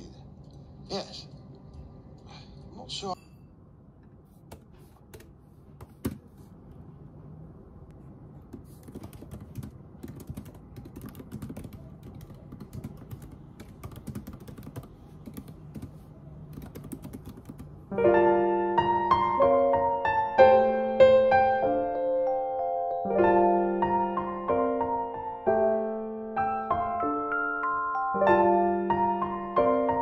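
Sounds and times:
typing on laptop keyboard: 8.5 - 17.8
soft piano music: 17.9 - 30.0.

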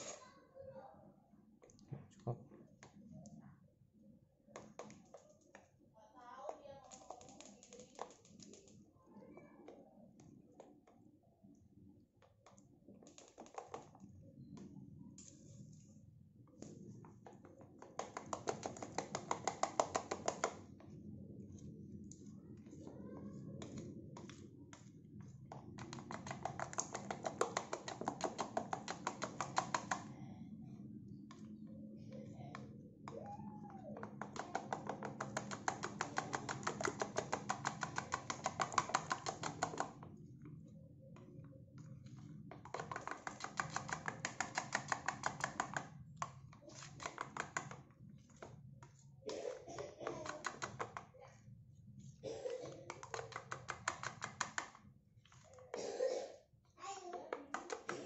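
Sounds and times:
spoon whisking batter in bowl: 0.0 - 0.3, 16.6 - 30.1, 33.9 - 40.1, 41.2 - 49.1.

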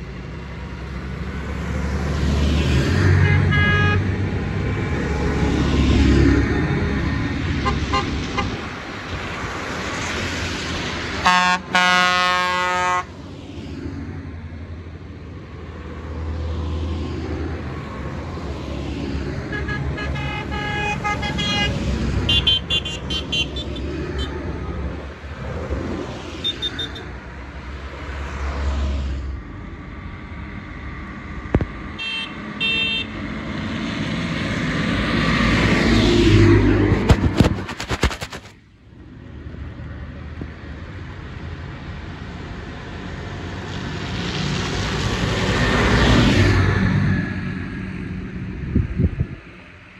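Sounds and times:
tractor engines rumbling: 0.0 - 49.9
vehicle horns honking: 3.2 - 4.1, 11.2 - 13.1, 19.5 - 24.4, 32.0 - 33.2
tyres hissing on wet road: 8.6 - 13.8, 42.4 - 46.6.

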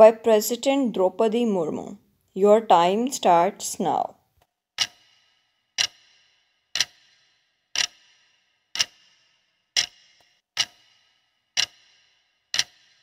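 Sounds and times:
clock ticking with ringing tail: 4.8 - 13.0.

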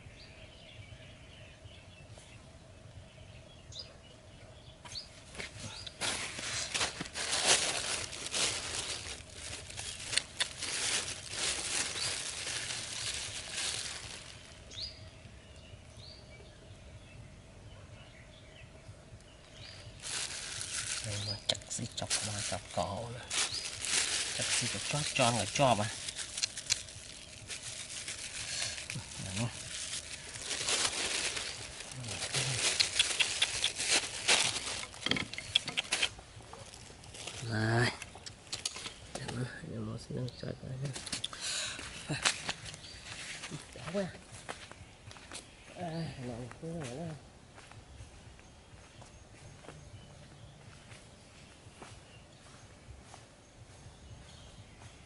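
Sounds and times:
plastic bag rustling: 6.0 - 14.8, 19.9 - 37.6
bird chirps: 13.6 - 36.8.

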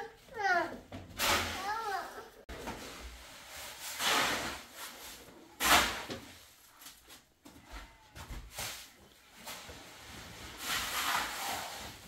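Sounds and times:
short scraping sounds: 2.8 - 6.2, 8.5 - 12.0.

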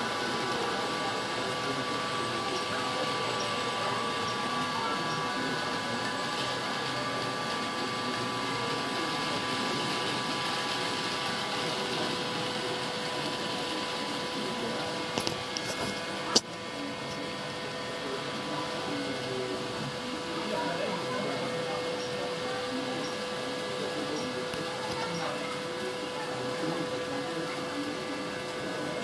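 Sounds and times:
small electric motors whirring: 0.0 - 29.0
steady humming tones: 0.0 - 29.0.

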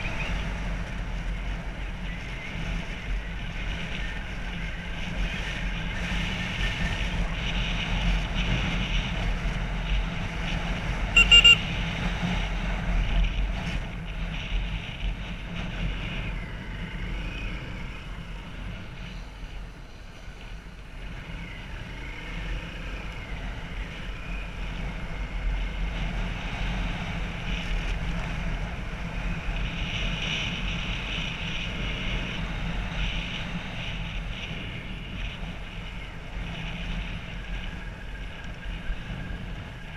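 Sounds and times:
motorbike engine running: 0.0 - 39.9
wind buffeting microphone: 0.0 - 39.9
high beep: 11.2 - 11.6.

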